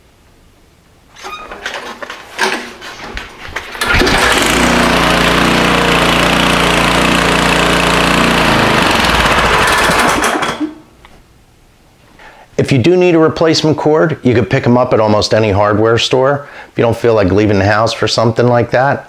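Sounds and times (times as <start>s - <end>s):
engine winding down: 3.7s - 10.6s
small engine starting and running: 3.7s - 10.8s.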